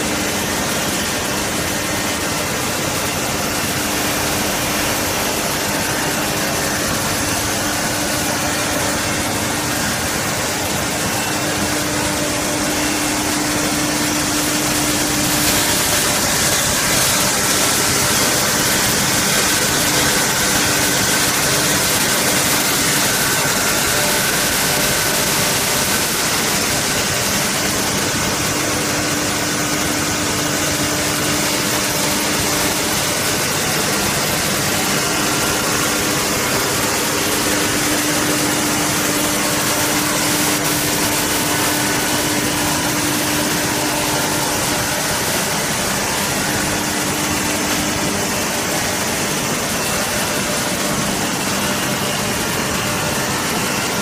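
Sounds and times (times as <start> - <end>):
machinery humming: 0.0 - 54.0.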